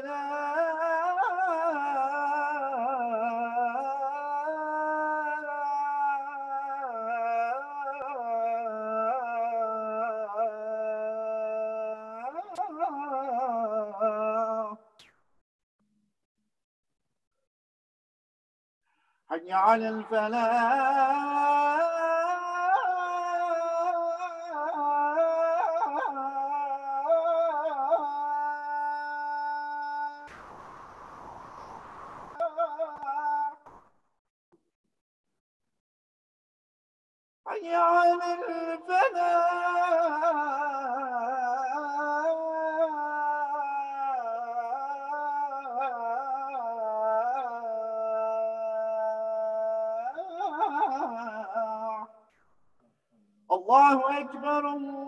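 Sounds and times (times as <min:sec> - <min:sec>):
man chanting call to prayer: 0:00.0 - 0:14.8, 0:19.3 - 0:30.3, 0:32.4 - 0:33.6, 0:37.5 - 0:52.2, 0:53.5 - 0:55.0.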